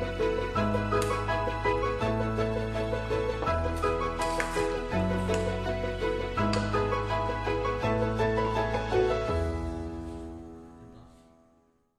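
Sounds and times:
slow instrumental music: 0.0s - 11.9s.

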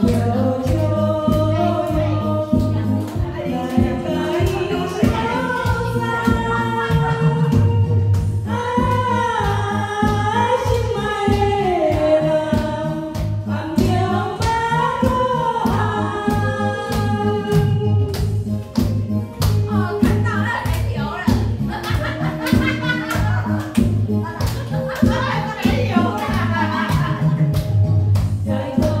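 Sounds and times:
backing track with beat and bass: 0.0s - 29.0s
woman singing karaoke ballad: 0.0s - 29.0s.

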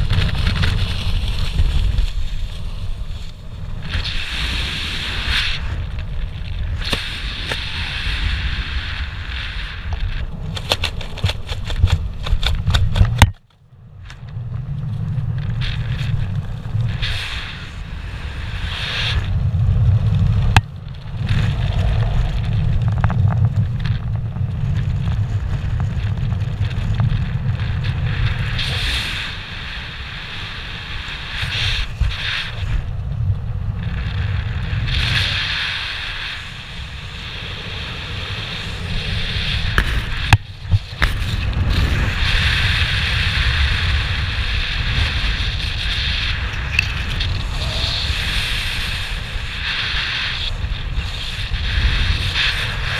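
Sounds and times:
wind rushing over microphone: 0.0s - 52.9s
sharp clicks: 10.5s - 14.2s.

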